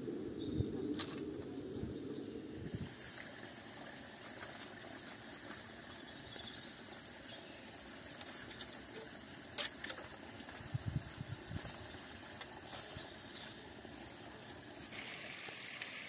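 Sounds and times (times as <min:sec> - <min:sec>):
dry branches rustling: 0:08.0 - 0:16.0.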